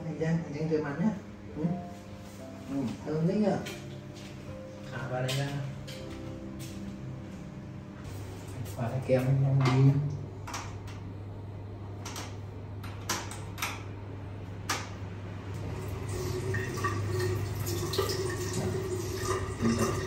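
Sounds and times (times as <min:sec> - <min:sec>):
tap water running into sink: 0:15.6 - 0:20.0.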